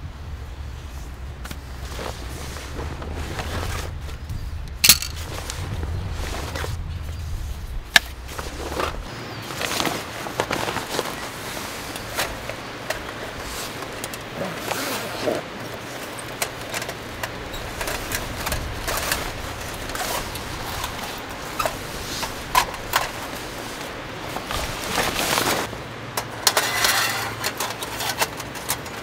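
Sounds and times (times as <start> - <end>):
fabric rustling: 0.9 - 4.2, 4.8 - 16.2, 17.0 - 25.8
metal panels clicking: 16.2 - 29.0.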